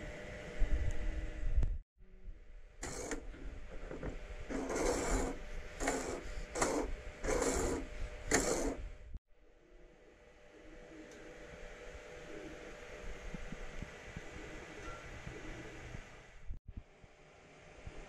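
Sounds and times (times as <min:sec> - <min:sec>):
slider rubbing and rattling on track: 0:02.8 - 0:08.8.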